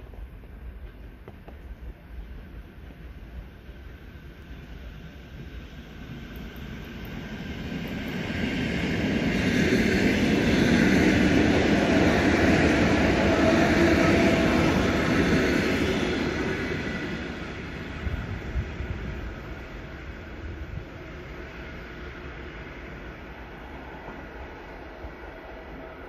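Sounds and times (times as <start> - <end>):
electric train passing on rails: 0.0 - 26.0.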